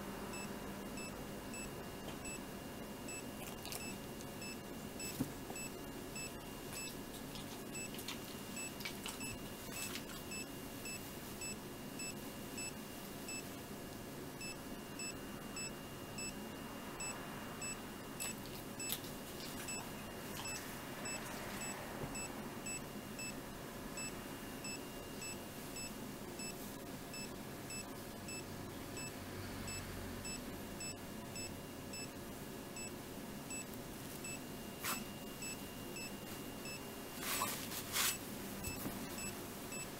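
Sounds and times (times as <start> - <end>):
ecg monitor beeps: 0.3 - 2.4, 3.1 - 7.0, 7.7 - 7.9, 8.5 - 13.5, 14.4 - 16.4, 17.0 - 18.9, 19.7 - 23.4, 24.0 - 32.2, 33.5 - 37.0.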